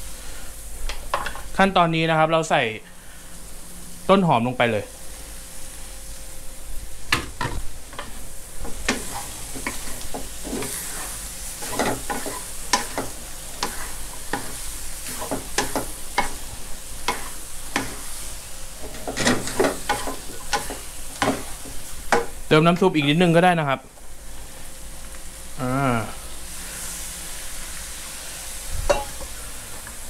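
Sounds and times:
food sizzling: 0.0 - 30.0
wooden spatula scraping a wok: 8.0 - 22.0.

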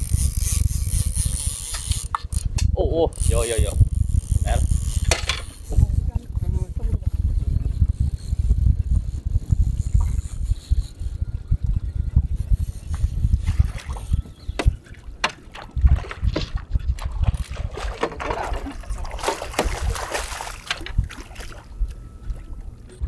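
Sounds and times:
wind rumble on microphone: 0.0 - 23.0
water splashing against boat: 13.4 - 23.0.

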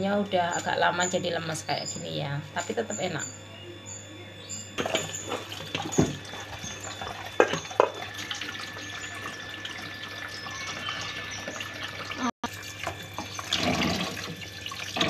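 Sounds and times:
tap water running onto leaves: 4.8 - 15.0.

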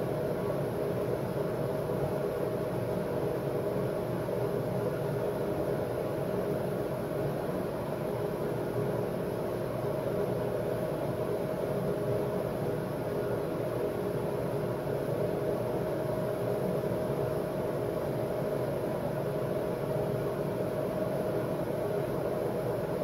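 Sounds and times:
mechanical hum with hiss: 0.0 - 23.0.

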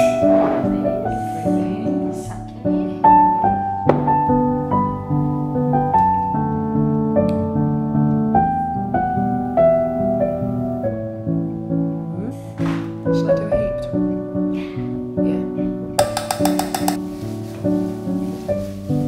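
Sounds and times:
piano melody over chords: 0.0 - 12.3, 13.3 - 19.0.

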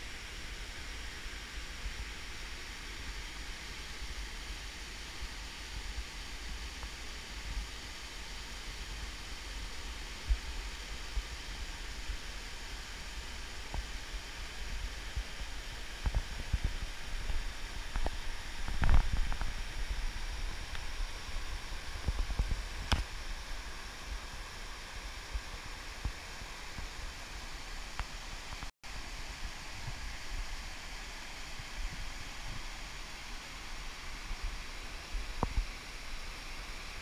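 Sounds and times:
water rushing down waterfall: 0.0 - 37.0
low rumbling microphone bumps: 15.4 - 23.1.

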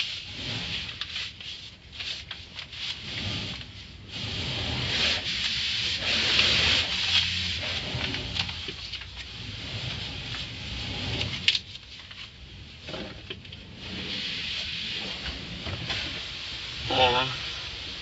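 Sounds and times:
car wash spray and brushes: 0.0 - 18.0.

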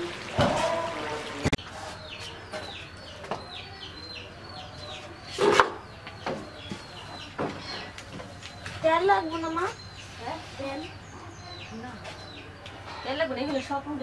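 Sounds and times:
birds chirping: 0.2 - 14.0.

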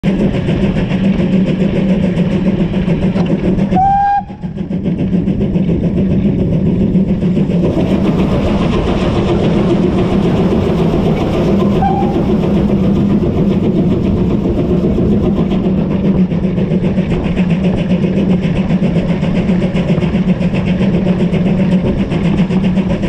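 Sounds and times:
steam locomotive running: 0.0 - 23.0
steam whistle blast: 3.8 - 4.4, 11.7 - 12.3.

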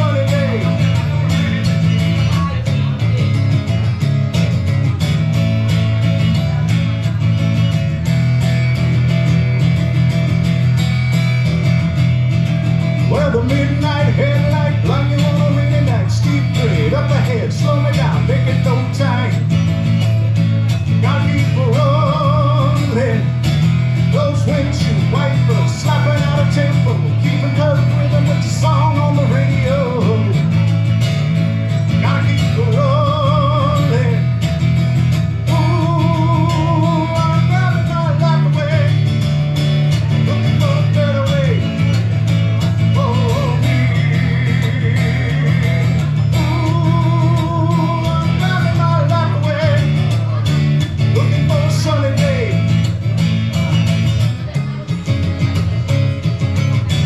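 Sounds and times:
person singing with vibrato: 0.0 - 3.5, 40.0 - 52.7
strummed acoustic guitar: 0.0 - 57.0.

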